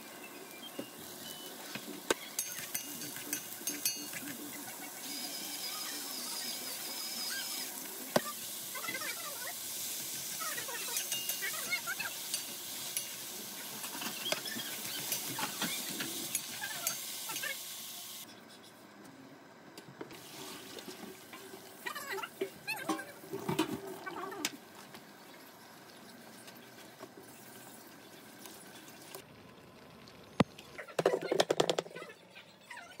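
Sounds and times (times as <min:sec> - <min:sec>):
vegetables sizzling in pan: 0:00.0 - 0:18.2, 0:20.2 - 0:23.3
spatula scraping pan: 0:13.8 - 0:17.4.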